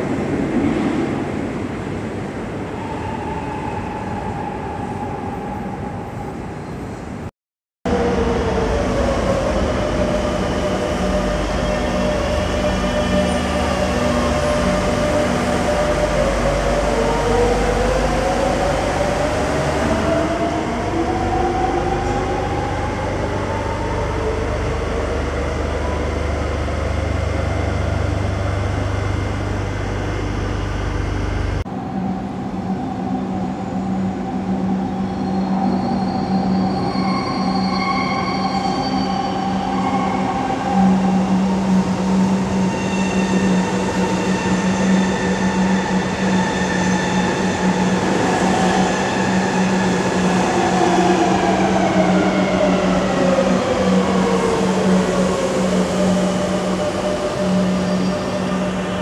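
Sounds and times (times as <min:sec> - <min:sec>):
train hum: 0:00.0 - 0:07.3, 0:07.9 - 0:59.0
train low rumble: 0:00.0 - 0:07.3, 0:07.9 - 0:37.4, 0:38.0 - 0:59.0
high wheel squeals: 0:35.0 - 0:41.0.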